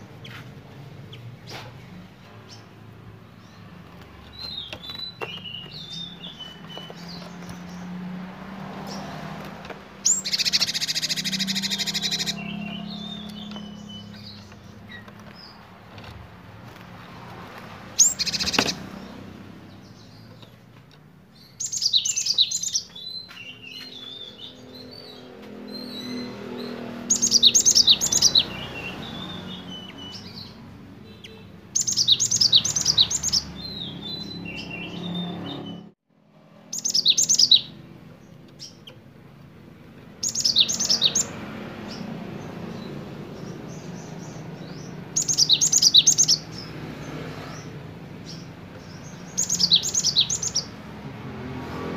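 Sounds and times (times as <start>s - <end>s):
soft bird chirps: 0.0s - 8.0s, 8.8s - 16.3s, 17.9s - 35.9s, 36.7s - 39.1s, 40.2s - 50.8s
bird singing high-pitched phrases: 3.4s - 7.8s, 10.1s - 15.6s, 21.4s - 35.9s, 36.7s - 39.0s, 40.2s - 42.0s, 42.7s - 46.6s, 48.2s - 50.8s.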